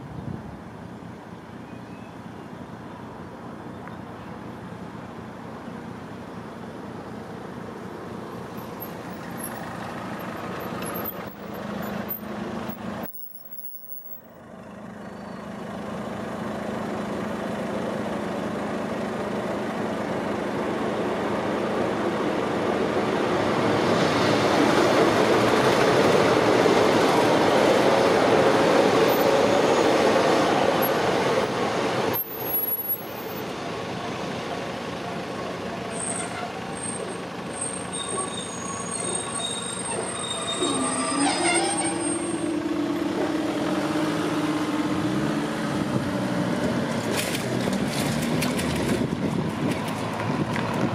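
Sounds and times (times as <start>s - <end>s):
diesel train engines approaching: 6.0s - 47.0s
high brake squeal: 13.1s - 14.3s, 29.1s - 30.0s, 32.2s - 33.4s, 35.8s - 42.7s.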